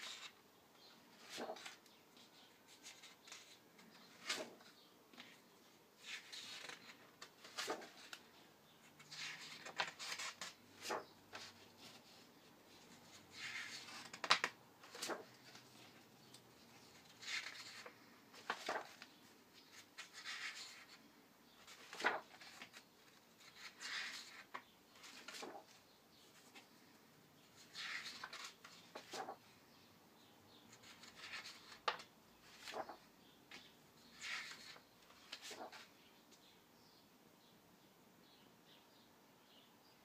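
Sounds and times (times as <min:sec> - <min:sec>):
book pages turning: 0:00.0 - 0:00.4, 0:01.1 - 0:05.4, 0:06.0 - 0:21.0, 0:21.6 - 0:26.7, 0:27.5 - 0:29.4, 0:30.7 - 0:35.9
pages tapping and slapping: 0:01.2 - 0:01.8, 0:02.8 - 0:05.4, 0:06.0 - 0:08.2, 0:13.4 - 0:15.6, 0:17.2 - 0:19.1, 0:21.7 - 0:22.8, 0:23.6 - 0:25.8, 0:27.8 - 0:29.4, 0:30.8 - 0:33.0.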